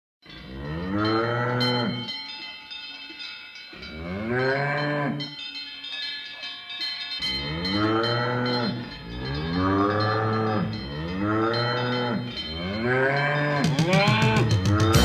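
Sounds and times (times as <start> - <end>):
cows mooing: 0.4 - 2.1, 3.8 - 5.3, 7.2 - 15.0.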